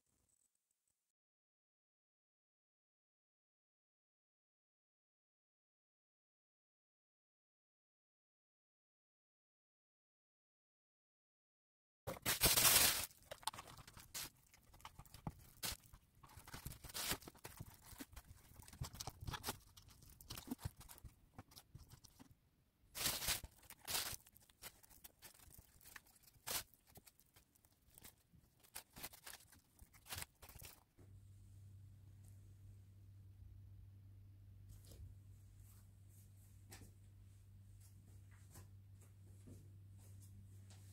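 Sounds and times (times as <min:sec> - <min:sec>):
hands pressing wet paper pulp: 0:12.1 - 0:22.3, 0:23.0 - 0:30.9
paper and plastic rustling: 0:12.1 - 0:22.3, 0:23.0 - 0:30.9.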